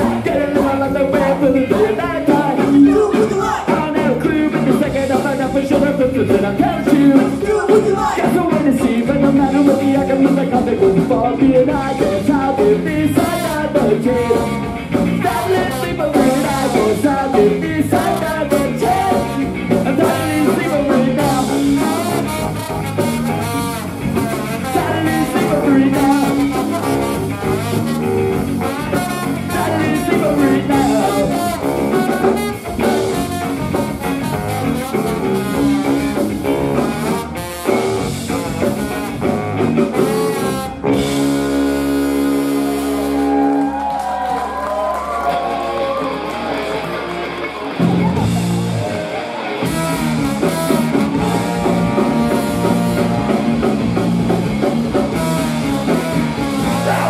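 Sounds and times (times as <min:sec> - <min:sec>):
ska-punk band playing: 0:00.0 - 0:57.0
saxophone and trombone horn lines: 0:13.0 - 0:43.8, 0:49.6 - 0:57.0.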